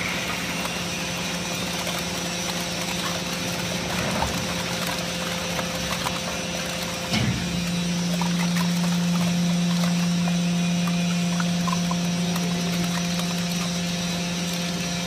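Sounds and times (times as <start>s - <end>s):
hydraulic pump humming: 0.0s - 15.0s.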